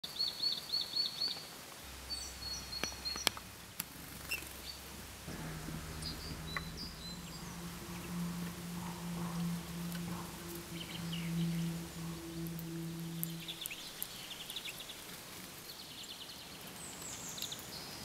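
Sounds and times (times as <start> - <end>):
songbirds calling: 0.1 - 18.0
low steady drone: 1.7 - 15.6.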